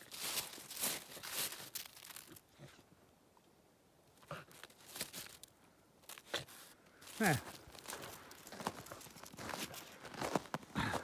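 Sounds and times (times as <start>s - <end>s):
dog digging in crusted snow: 4.3s - 5.4s.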